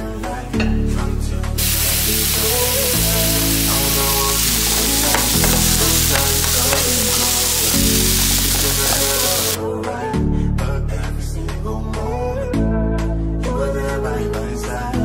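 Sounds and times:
background music with bass: 0:00.0 - 0:15.0
food sizzling in a frying pan: 0:01.6 - 0:09.6.

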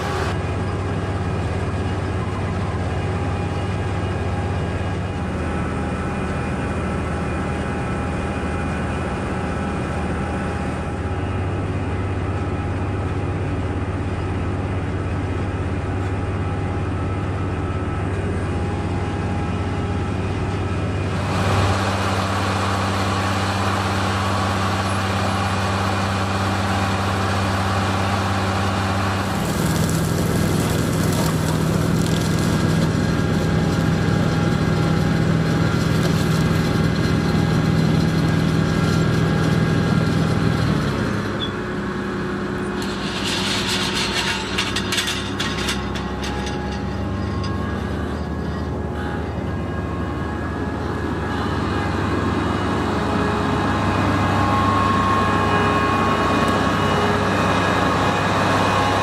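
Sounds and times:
harvester engine hum: 0:00.0 - 0:59.0
soil rattling through machine: 0:27.6 - 0:39.2, 0:42.5 - 0:48.6.

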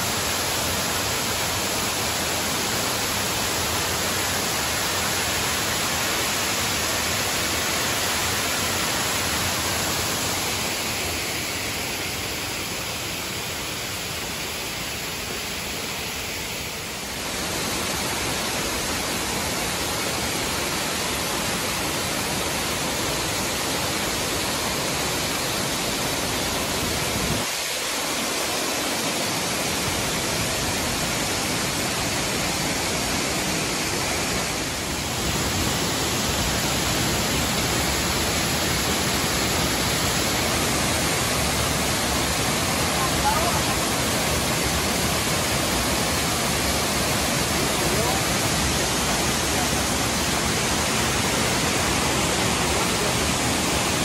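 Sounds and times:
waterfall rushing into pool: 0:00.0 - 0:54.0.

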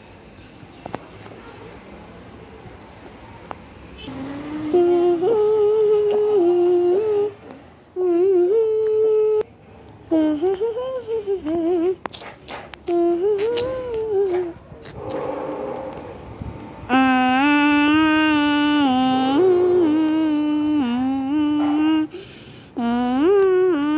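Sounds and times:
person humming a tune: 0:04.0 - 0:09.5, 0:10.1 - 0:12.1, 0:12.8 - 0:14.6, 0:16.9 - 0:23.9.

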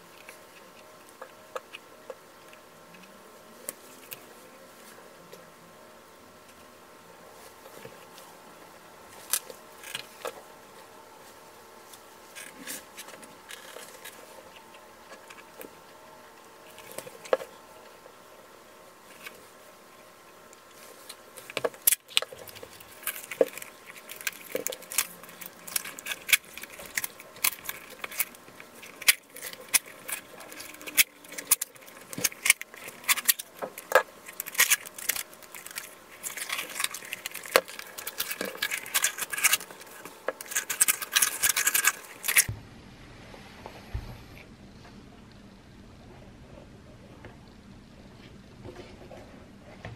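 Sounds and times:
handling rustle: 0:07.3 - 0:42.5
masking tape peeling crackle: 0:19.0 - 0:42.5.

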